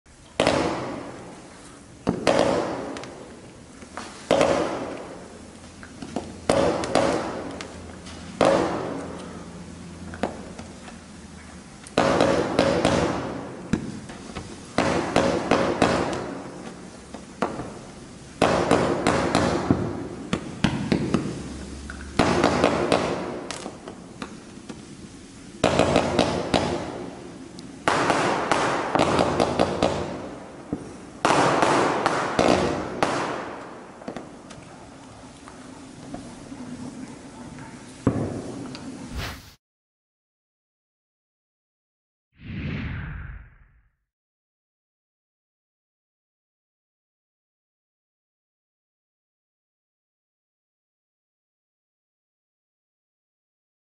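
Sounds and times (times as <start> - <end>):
firework hiss: 39.1 - 39.6
firework launches: 39.1 - 39.6.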